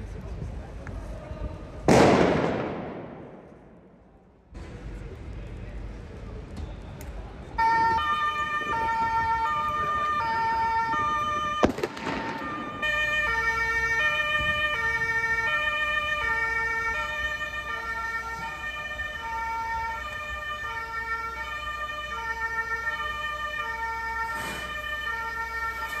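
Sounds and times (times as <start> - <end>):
low vehicle rumble: 0.0 - 26.0
two-tone emergency siren: 7.6 - 26.0.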